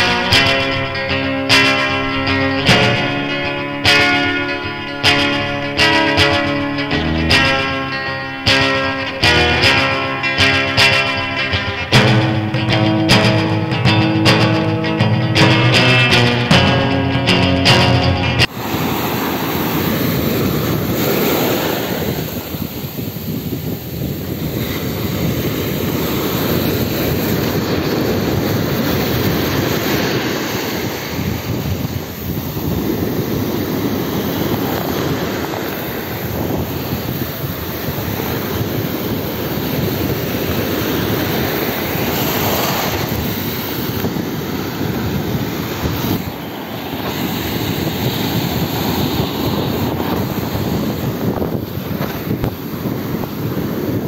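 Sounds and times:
ocean waves breaking on sand: 0:00.0 - 0:14.7, 0:15.5 - 0:54.0
wind buffeting microphone: 0:00.0 - 0:54.0.

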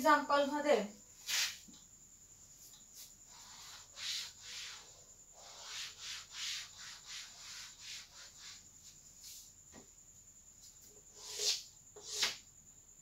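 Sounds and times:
duster wiping a chalkboard: 0:01.2 - 0:01.7, 0:02.6 - 0:09.5, 0:11.1 - 0:12.4.

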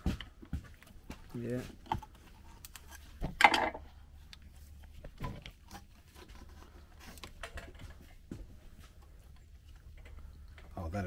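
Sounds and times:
metal clicks taps and scrapes: 0:04.3 - 0:08.2.

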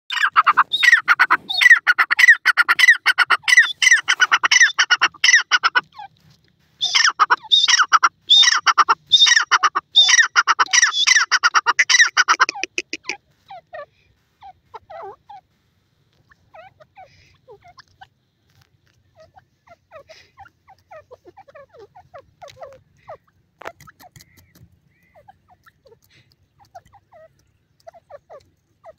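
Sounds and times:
francolin calling: 0:00.1 - 0:06.1, 0:06.8 - 0:15.5
faint bird chirps: 0:19.1 - 0:28.9.

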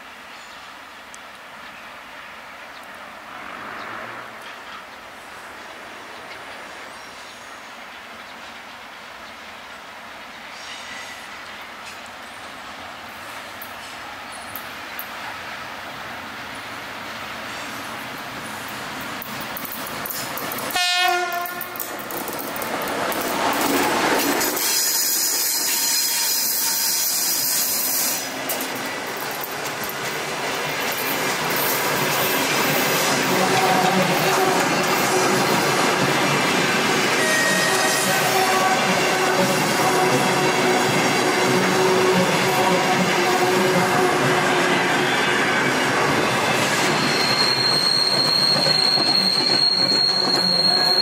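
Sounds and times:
train wheels rolling on rails: 0:05.4 - 0:51.0
high-pitched wheel squeal: 0:24.6 - 0:28.3, 0:37.2 - 0:38.1, 0:45.1 - 0:51.0.

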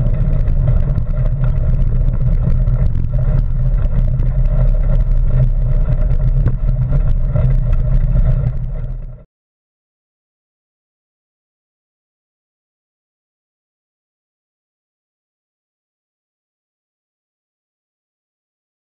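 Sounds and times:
bike tyres rumbling on gravel: 0:00.0 - 0:09.2
gravel ticks and rattles: 0:00.0 - 0:09.2
wind buffeting microphone: 0:00.0 - 0:09.2.

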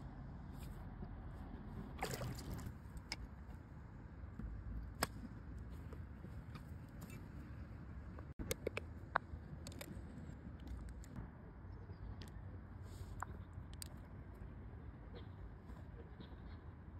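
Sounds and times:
water splashing: 0:02.0 - 0:02.7.

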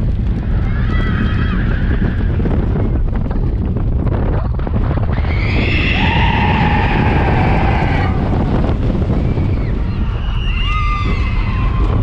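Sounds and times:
roller coaster rumbling on track: 0:00.0 - 0:12.0
wind buffeting microphone: 0:00.0 - 0:12.0
people screaming: 0:00.5 - 0:02.5, 0:05.1 - 0:12.0.

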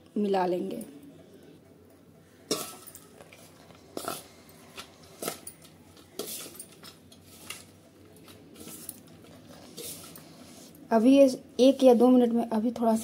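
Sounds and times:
metal spoon scraping steel bowl: 0:02.5 - 0:07.7, 0:08.6 - 0:10.8.

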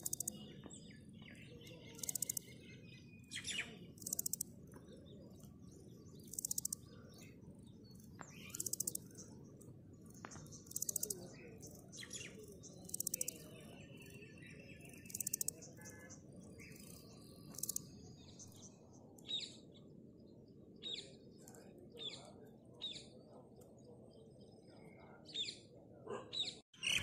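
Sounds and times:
grasshopper stridulating: 0:00.0 - 0:00.4, 0:01.9 - 0:02.6, 0:03.8 - 0:04.7, 0:06.0 - 0:07.2, 0:08.0 - 0:09.3, 0:10.0 - 0:14.0, 0:14.7 - 0:17.9
faint birds chirping: 0:00.0 - 0:27.0.

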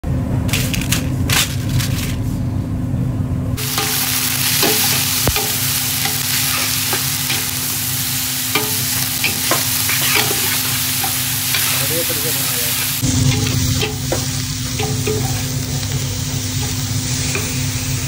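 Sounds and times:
steady low hum: 0:00.0 - 0:11.8, 0:12.7 - 0:18.0
onions sizzling in a pot: 0:03.6 - 0:18.0
metal spoon clinking and scraping: 0:08.6 - 0:11.9, 0:13.3 - 0:15.6.

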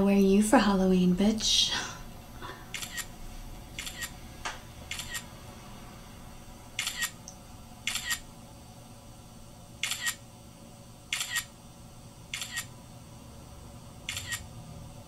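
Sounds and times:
camera shutter clicking: 0:02.8 - 0:03.1, 0:03.8 - 0:04.1, 0:04.9 - 0:05.2, 0:06.8 - 0:07.2, 0:07.9 - 0:08.2, 0:09.8 - 0:10.2, 0:11.1 - 0:11.5, 0:12.4 - 0:12.7, 0:14.1 - 0:14.4.

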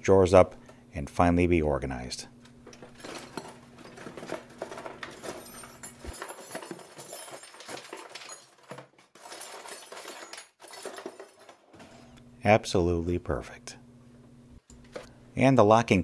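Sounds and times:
metal tools clattering into drawer: 0:02.7 - 0:12.1.

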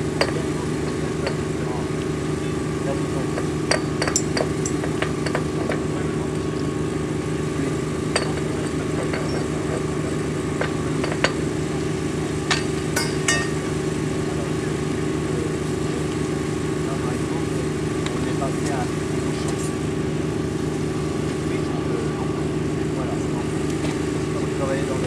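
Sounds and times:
small engine running: 0:00.0 - 0:25.0
hand tools clinking on steel rail: 0:12.5 - 0:13.7.

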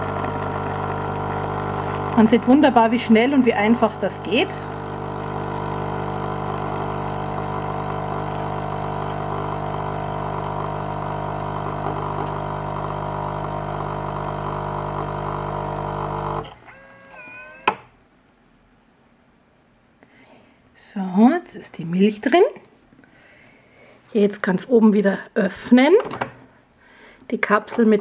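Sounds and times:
milk streaming into glass: 0:00.0 - 0:16.4
capsule machine pump buzzing: 0:00.0 - 0:17.8.

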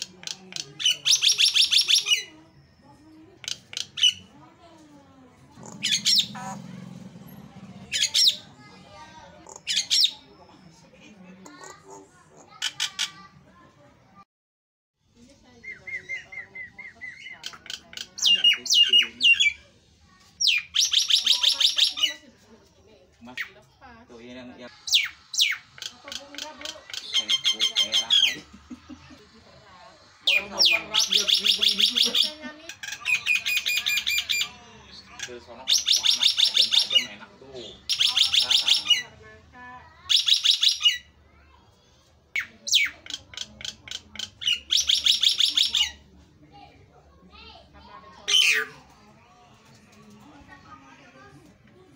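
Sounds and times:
myna bird whistling: 0:05.8 - 0:06.6, 0:15.6 - 0:19.6.

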